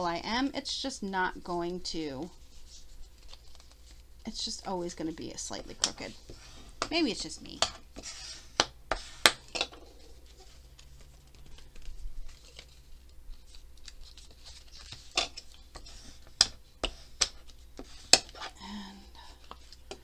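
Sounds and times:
paper card rustling: 0:02.4 - 0:04.1, 0:09.8 - 0:16.3.

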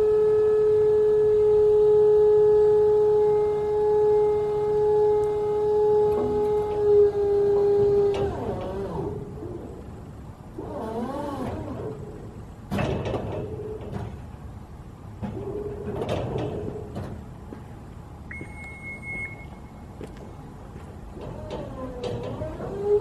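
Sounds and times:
scissor lift lowering: 0:05.9 - 0:09.9, 0:10.5 - 0:14.3, 0:21.2 - 0:23.0
high beep: 0:18.3 - 0:19.7
wavering squeal: 0:18.3 - 0:19.9.

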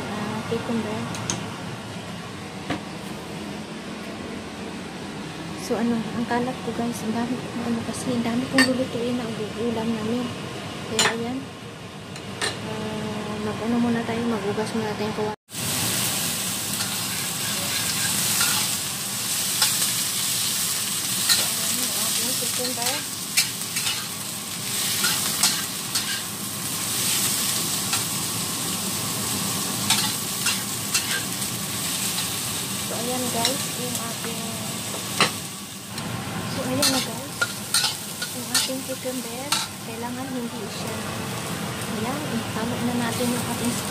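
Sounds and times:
cucumber slices sizzling in a wok: 0:15.5 - 0:43.9
metal spatula scraping a wok: 0:16.8 - 0:18.8, 0:22.7 - 0:26.3, 0:29.9 - 0:31.4.

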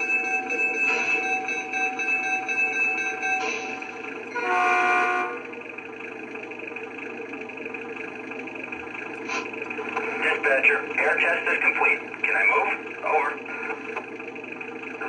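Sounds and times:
model train bell: 0:00.0 - 0:04.5
idling engine hum: 0:00.0 - 0:15.0
model train horn toot: 0:04.3 - 0:05.6.

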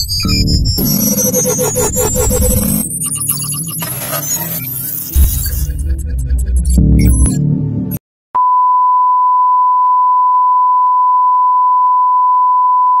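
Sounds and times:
electronic music: 0:00.0 - 0:08.0
sine test tone: 0:08.4 - 0:13.0.

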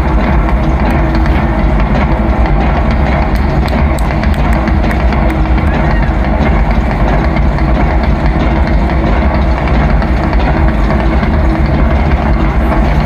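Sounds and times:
deep bass rumbling drone: 0:00.0 - 0:13.0.

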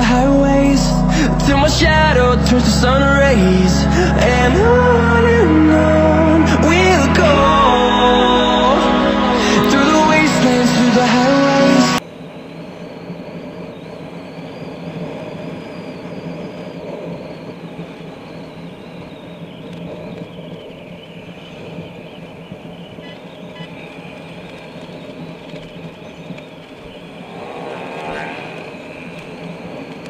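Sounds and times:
high whine sliding lower: 0:00.0 - 0:30.0
scooter engine hum: 0:00.0 - 0:30.0
rushing road noise: 0:23.2 - 0:30.0.

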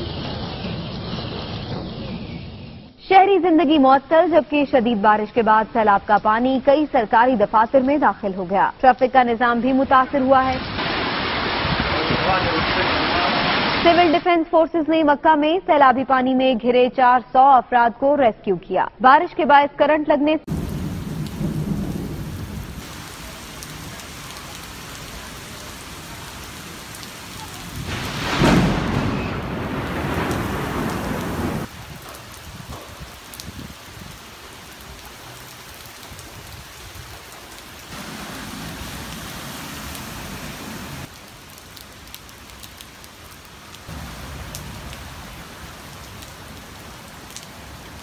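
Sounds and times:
heavy rain falling: 0:00.0 - 0:02.5, 0:10.4 - 0:14.2, 0:20.5 - 0:48.0
thunder rumbling: 0:20.5 - 0:34.9.

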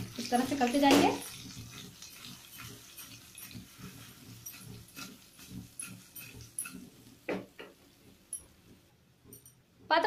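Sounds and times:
food sliding in pan: 0:00.0 - 0:07.3
pan scraping on burner grate: 0:00.0 - 0:07.6.

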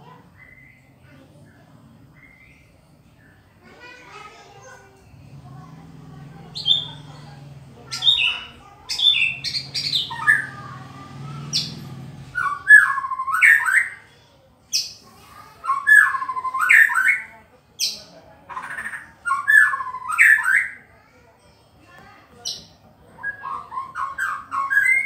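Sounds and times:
bird singing whistled phrases: 0:00.4 - 0:00.9, 0:12.4 - 0:14.0, 0:15.6 - 0:17.3, 0:19.2 - 0:20.8, 0:23.2 - 0:25.0.

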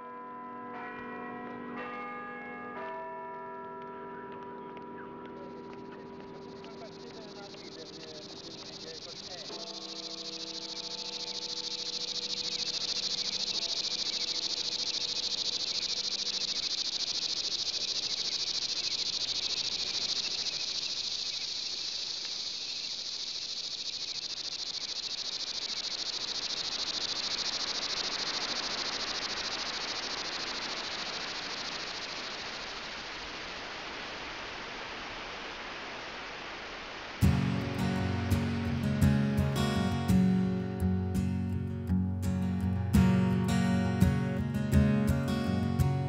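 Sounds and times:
insect chorus chirring: 0:05.5 - 0:46.0
broad hiss: 0:25.4 - 0:40.0
held musical chord: 0:37.2 - 0:46.0.

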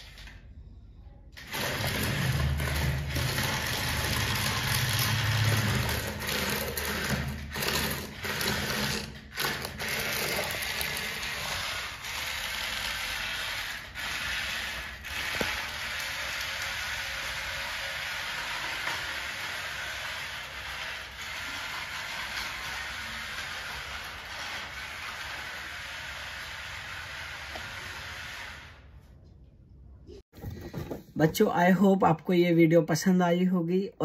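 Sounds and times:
toy motor and gears whirring: 0:01.4 - 0:28.8.

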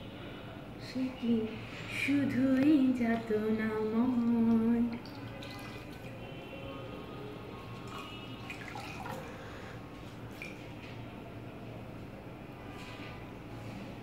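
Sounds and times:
small water splashes: 0:04.8 - 0:06.4, 0:07.7 - 0:10.7
water dripping into a glass bowl: 0:07.8 - 0:09.3.

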